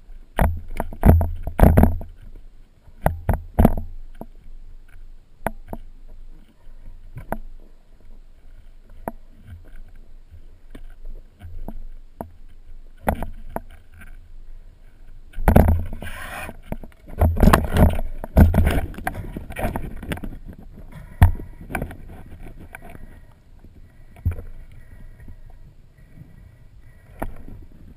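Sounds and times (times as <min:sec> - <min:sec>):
underwater clicks and knocks: 0:00.3 - 0:07.6, 0:08.8 - 0:14.2, 0:15.3 - 0:23.1, 0:24.1 - 0:25.6, 0:27.1 - 0:27.9.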